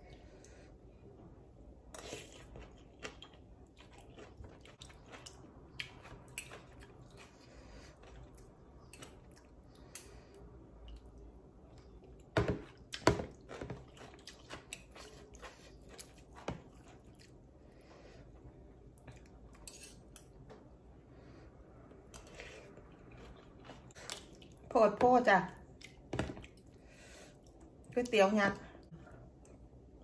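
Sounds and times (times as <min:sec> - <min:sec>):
quiet chewing: 0:01.9 - 0:20.6, 0:21.9 - 0:24.7.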